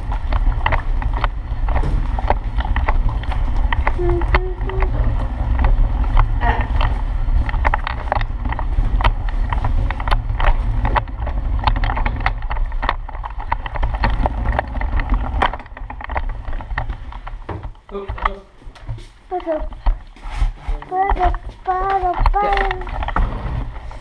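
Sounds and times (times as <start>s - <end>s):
tricycle rolling on hard floor: 0.0s - 24.0s.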